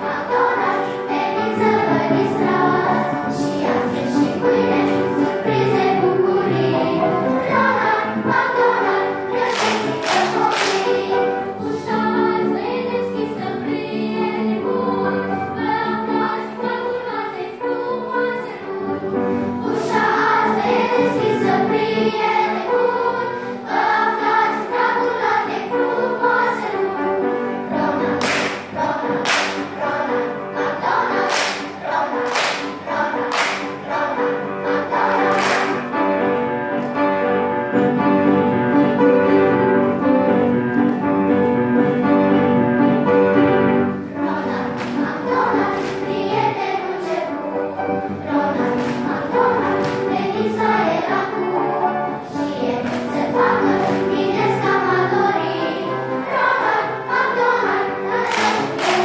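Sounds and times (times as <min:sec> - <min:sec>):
children's choir singing: 0:00.0 - 0:59.0
singers clapping in time: 0:09.4 - 0:11.4, 0:28.0 - 0:30.0, 0:30.6 - 0:36.0, 0:44.6 - 0:47.3, 0:48.5 - 0:50.1, 0:52.8 - 0:54.2, 0:58.1 - 0:59.0.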